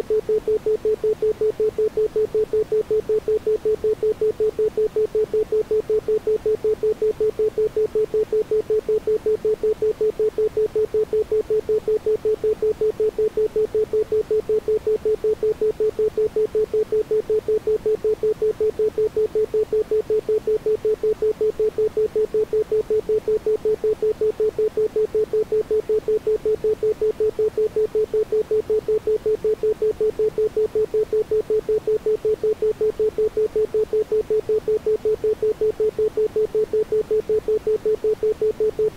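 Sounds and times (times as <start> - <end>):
steady pulsing beep: 0.0 - 38.9.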